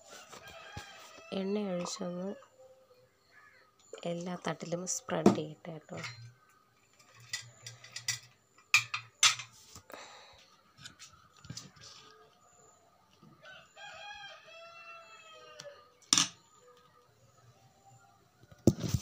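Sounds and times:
rooster crowing: 0:00.0 - 0:02.4, 0:13.3 - 0:16.0.

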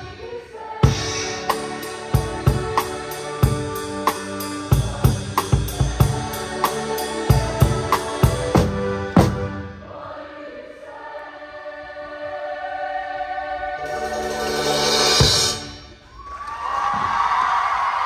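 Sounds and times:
choir holding a chord: 0:00.0 - 0:15.8
drum kit groove: 0:00.8 - 0:09.6, 0:13.9 - 0:15.9.

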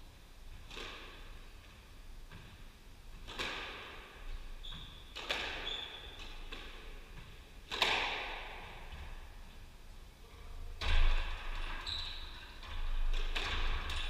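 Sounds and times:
squash ball hits echoing: 0:00.6 - 0:01.4, 0:03.2 - 0:09.3, 0:12.6 - 0:14.0
short high shoe squeaks: 0:04.6 - 0:06.2, 0:11.8 - 0:12.4.

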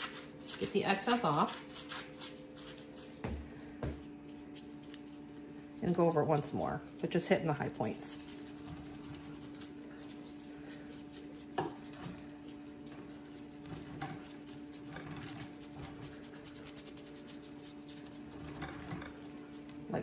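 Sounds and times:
bristles scratching on concrete: 0:00.0 - 0:03.2
steady background hum: 0:00.0 - 0:20.0.

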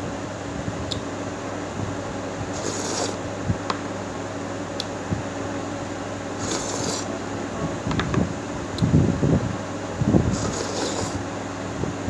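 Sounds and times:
steady background hum: 0:00.0 - 0:12.0
person slurping porridge: 0:02.5 - 0:03.2, 0:06.4 - 0:07.1, 0:10.3 - 0:11.2.

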